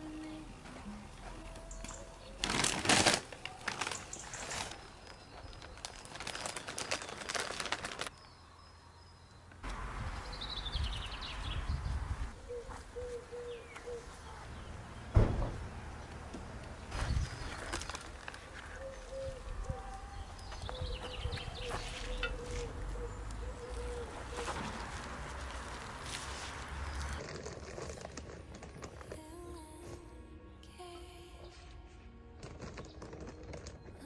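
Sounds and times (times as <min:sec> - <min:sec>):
dove cooing: 0:12.4 - 0:14.2, 0:20.7 - 0:24.6
sharp thump: 0:15.1 - 0:15.7.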